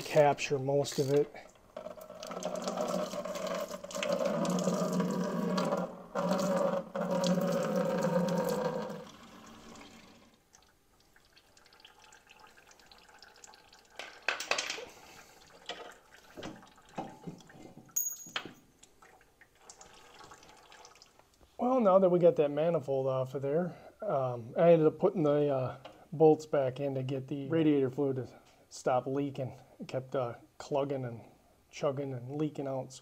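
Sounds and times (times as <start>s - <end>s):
liquid pouring into bucket: 1.6s - 14.3s, 14.9s - 17.7s, 19.0s - 21.2s.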